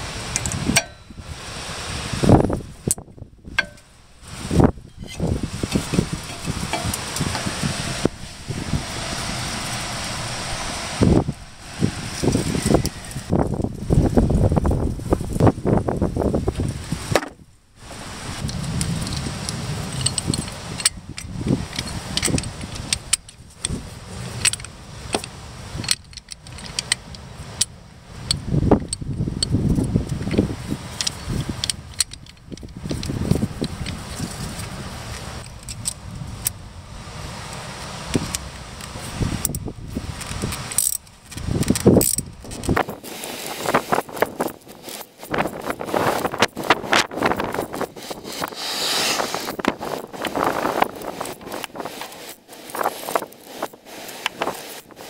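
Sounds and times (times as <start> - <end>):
metal tool clinking and rattling: 3.6 - 4.0, 4.8 - 7.6, 19.9 - 23.8, 24.4 - 27.7, 40.2 - 53.8.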